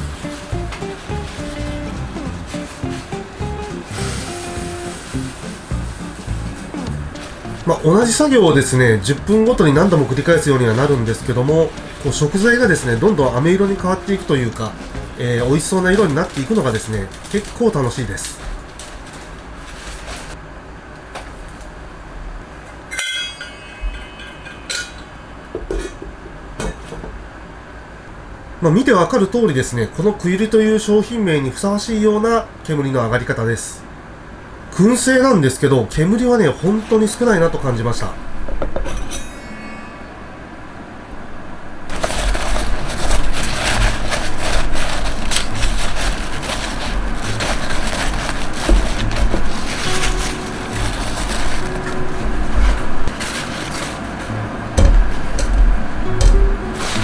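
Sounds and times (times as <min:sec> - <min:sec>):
paper towel rustling: 0:00.0 - 0:20.4, 0:36.0 - 0:38.1, 0:41.9 - 0:57.0.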